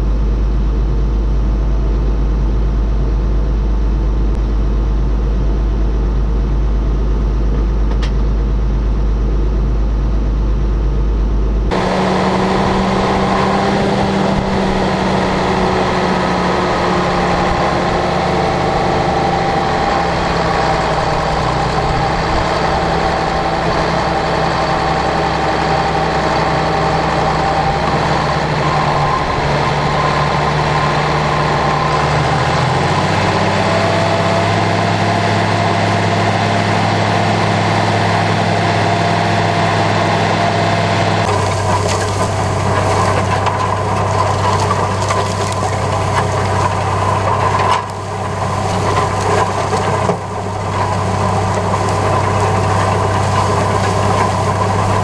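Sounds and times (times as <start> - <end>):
tractor diesel engine: 0.0 - 55.0
cultivator scraping through soil: 41.2 - 55.0.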